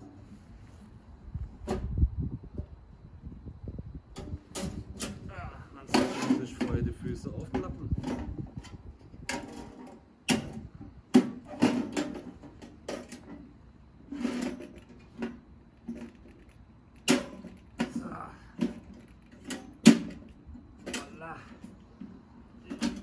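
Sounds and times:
metal stove clanking: 17.0s - 18.0s, 18.6s - 21.2s, 22.6s - 23.0s.

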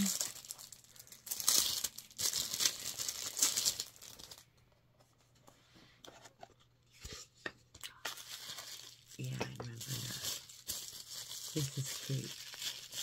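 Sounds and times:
packaging crinkling and tearing: 0.0s - 4.5s, 7.9s - 13.0s.

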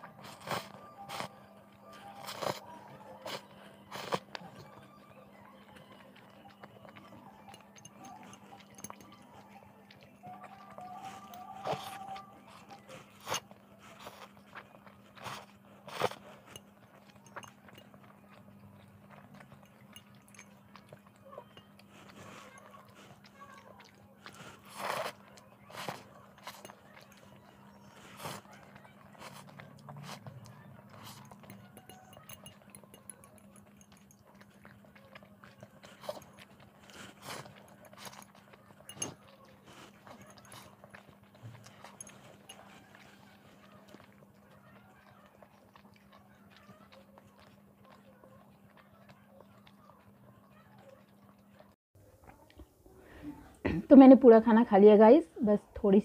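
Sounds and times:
chewing noodles: 0.0s - 53.7s
metal fork clicking on glass bowl: 31.5s - 34.1s.

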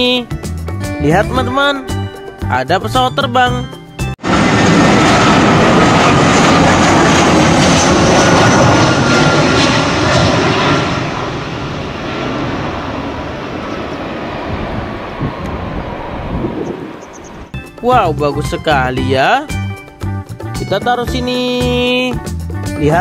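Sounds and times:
jet engines rumbling and whining: 3.8s - 22.0s.

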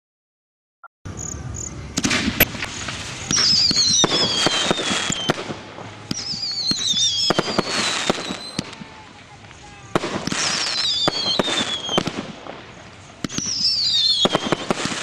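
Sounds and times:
fireworks cracks: 1.1s - 15.0s
falling firework whistle: 1.6s - 15.0s
fireworks sparks hissing: 1.6s - 15.0s.

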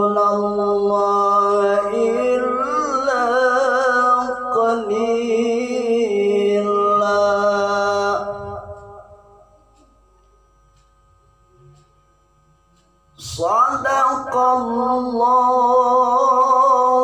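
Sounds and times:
man reciting melodically: 0.0s - 9.8s, 13.1s - 17.0s.

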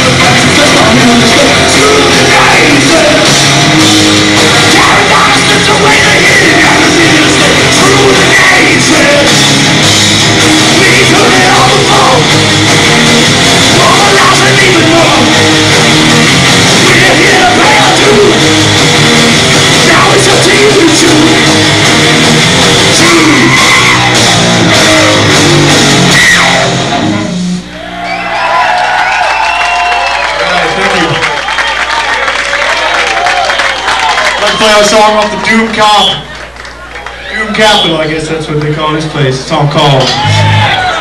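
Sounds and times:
person singing: 0.0s - 3.4s, 4.6s - 9.5s, 10.6s - 12.4s, 13.6s - 15.5s, 16.8s - 18.5s
distorted doom metal band: 0.0s - 28.2s, 39.8s - 41.0s.

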